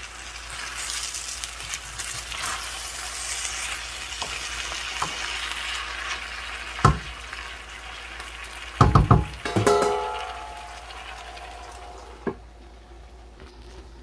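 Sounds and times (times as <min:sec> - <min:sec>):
food sizzling in a frying pan: 0:00.0 - 0:12.6
sharp knock: 0:08.8 - 0:10.6.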